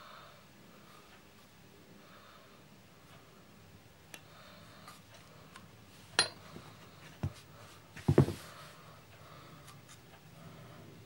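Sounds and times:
metal tool handling noise: 6.2s - 6.4s
tool knocking on carpeted floor: 8.0s - 8.4s.

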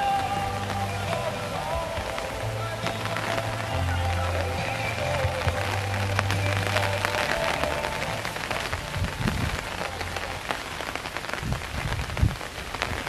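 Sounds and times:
rain falling: 0.0s - 13.0s
raindrops ticking on umbrellas: 0.0s - 13.0s
dull low thumps: 0.2s - 10.5s.

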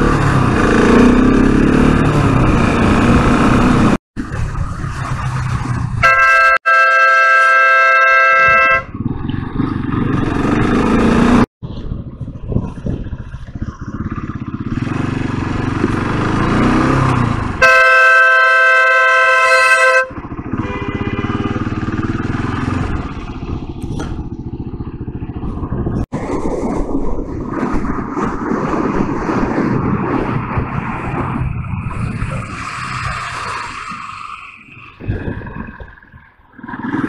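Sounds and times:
motorcycle engine: 0.0s - 26.1s
road noise: 0.0s - 37.0s
vehicle horn blasts: 6.0s - 8.9s, 17.6s - 21.8s.

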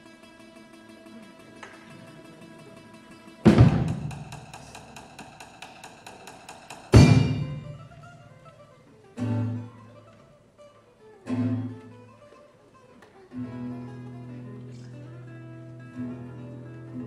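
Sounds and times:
acoustic band music: 0.0s - 17.0s
acoustic guitar chords ringing: 6.9s - 8.6s, 9.2s - 10.0s.

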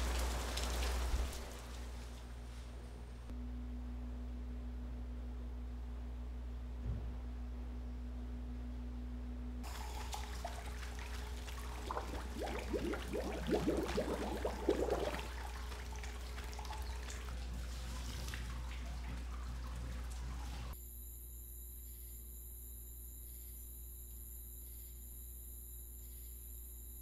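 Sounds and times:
water running and splashing: 0.0s - 2.3s, 9.6s - 20.8s
steady low hum: 0.1s - 27.0s.

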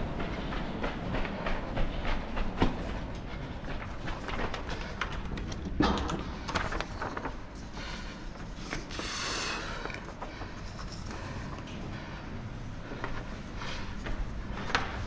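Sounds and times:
footsteps on a hard floor: 0.0s - 5.0s.

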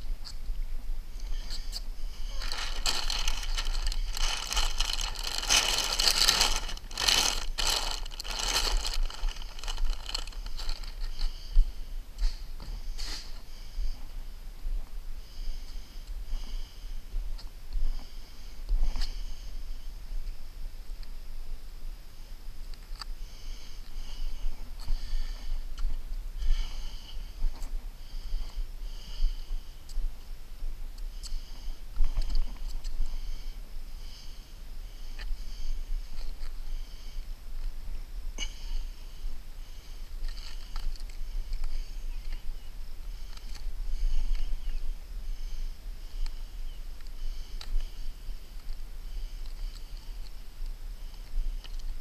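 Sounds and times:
steady low rumble: 0.0s - 12.2s
man breathing heavily through nose: 1.1s - 14.3s, 15.1s - 20.0s, 23.1s - 51.8s.

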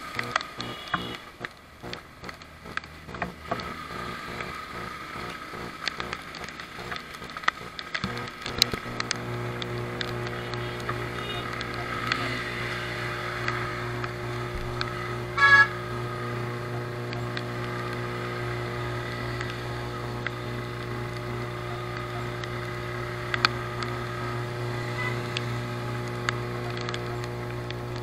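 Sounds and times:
motorcycle engine running: 0.0s - 28.0s
vehicle horn toot: 0.6s - 1.3s, 10.4s - 11.6s, 15.3s - 15.9s, 24.8s - 25.3s.

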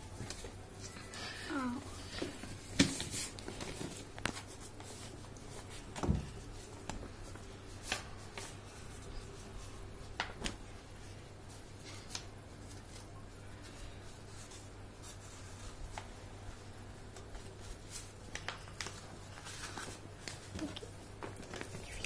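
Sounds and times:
paper rustling and crinkling: 1.6s - 22.0s.

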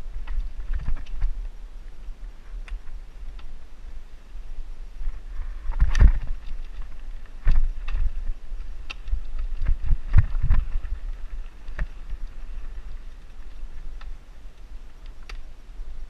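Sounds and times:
bike knocking and rattling: 0.0s - 2.1s, 5.1s - 15.5s
bike tyres rumbling on dirt: 0.0s - 16.0s
wind: 0.0s - 16.0s.

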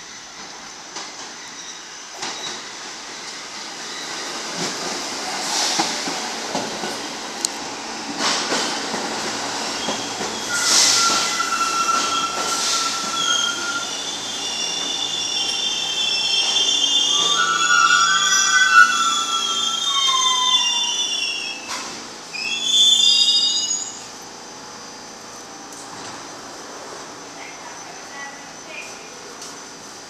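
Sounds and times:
train air hiss: 0.1s - 22.1s
high-pitched brake squeal: 1.3s - 4.3s, 9.7s - 24.2s
train wheels clicking on rail joints: 4.5s - 14.0s.

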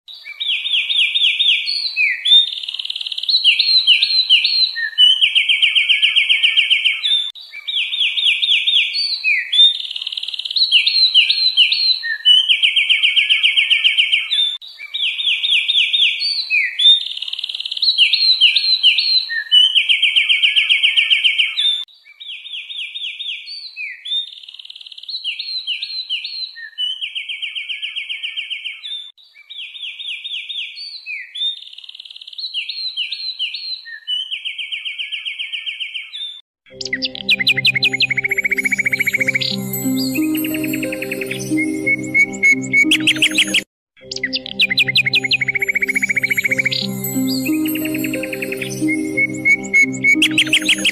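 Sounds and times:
songbird chirps and trills: 36.7s - 50.9s.

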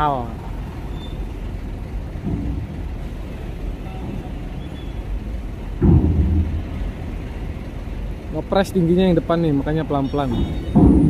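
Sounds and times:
heavy truck engines rumbling: 0.0s - 11.0s
heavy clunk on steel ramp: 2.1s - 5.0s, 5.6s - 7.5s, 10.3s - 11.0s.

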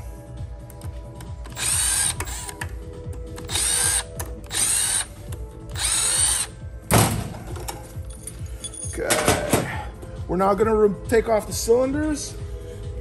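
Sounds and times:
impact driver bursts: 1.5s - 2.6s, 3.4s - 5.1s, 5.7s - 6.5s.

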